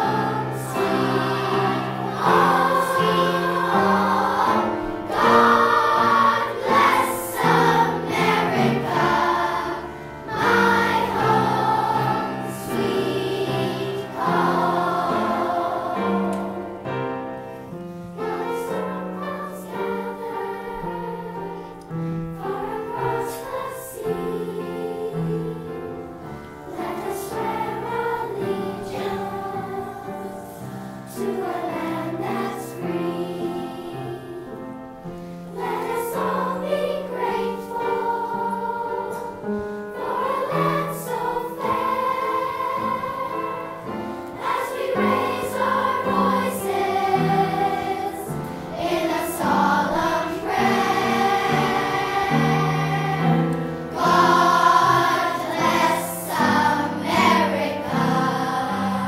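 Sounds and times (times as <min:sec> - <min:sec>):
girls choir singing in unison: 0:00.0 - 0:59.0.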